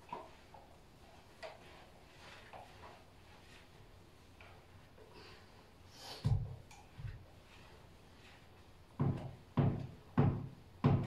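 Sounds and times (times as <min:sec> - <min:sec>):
cleaning tool knocking on floor: 0:09.0 - 0:11.0.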